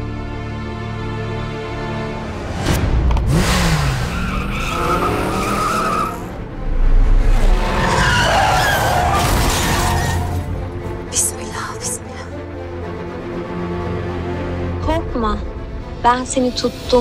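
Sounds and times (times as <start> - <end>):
car tyres squealing: 3.6 - 6.4, 7.4 - 10.5.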